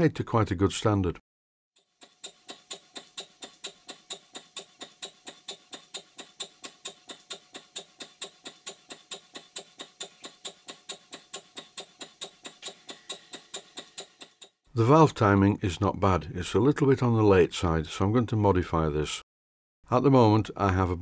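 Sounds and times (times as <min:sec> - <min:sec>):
model steam engine clicking: 0:01.8 - 0:14.6.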